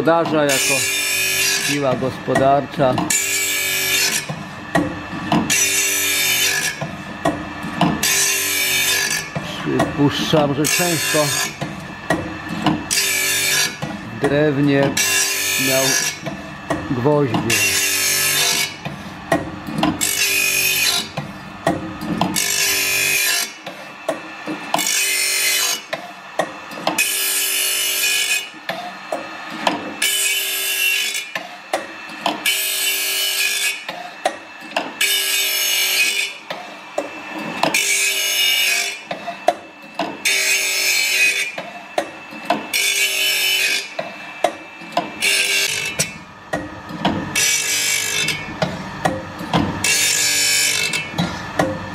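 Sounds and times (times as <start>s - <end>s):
grinding wheel hissing grind: 8.0s - 11.6s, 12.8s - 16.2s.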